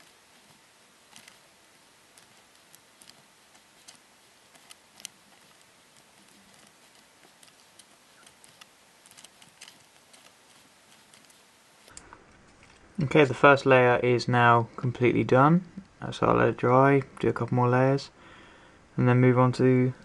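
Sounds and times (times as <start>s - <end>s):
small clicks and taps: 2.1s - 12.8s.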